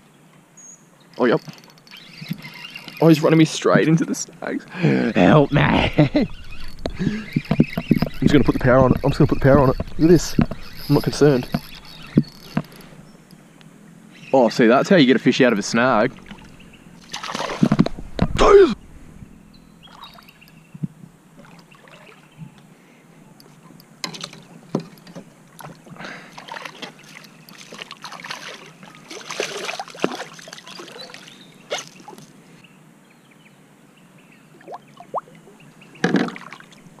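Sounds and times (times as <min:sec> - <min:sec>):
water splashing beside kayak: 0:16.0 - 0:18.1, 0:25.5 - 0:32.4
fish thrashing at surface: 0:17.1 - 0:17.8.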